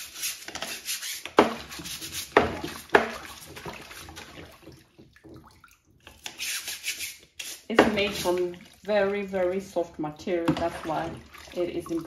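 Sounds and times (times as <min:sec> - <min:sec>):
brush scrubbing mesh filter: 0:00.0 - 0:04.7, 0:06.2 - 0:09.5
water splashing: 0:01.4 - 0:06.8, 0:07.6 - 0:12.0
sharp knocks: 0:02.3 - 0:03.2.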